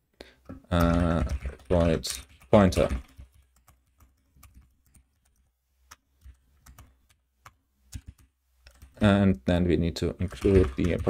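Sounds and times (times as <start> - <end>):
computer keyboard typing: 0.7 - 9.1, 10.2 - 11.0.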